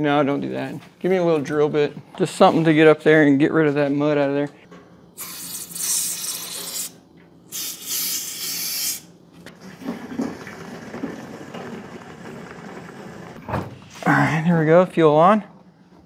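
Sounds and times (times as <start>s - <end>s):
aerosol can spraying: 5.2s - 9.1s.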